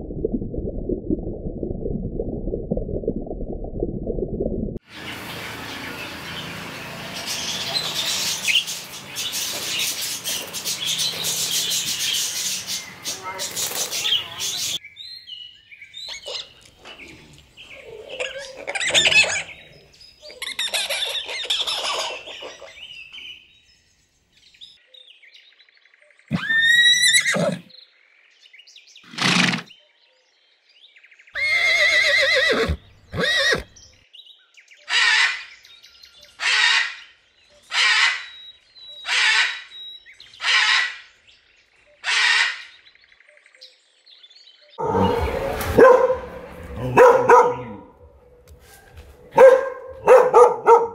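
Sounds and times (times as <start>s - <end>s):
gibbons chattering and squeaking: 20.3s - 22.3s
horses whinnying: 26.3s - 27.7s, 29.1s - 29.7s, 31.4s - 33.8s
dog barking: 45.7s - 47.9s, 48.7s - 50.9s.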